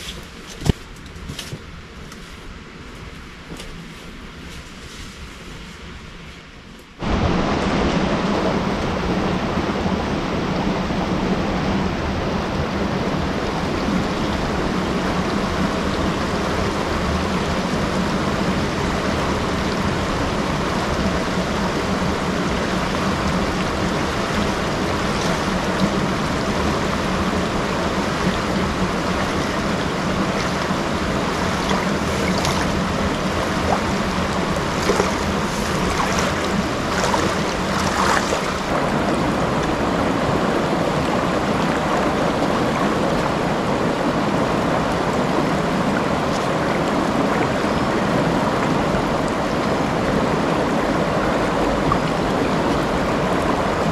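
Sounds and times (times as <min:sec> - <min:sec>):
river rushing over stones: 0:07.0 - 0:53.9
person wading through water: 0:29.1 - 0:39.8.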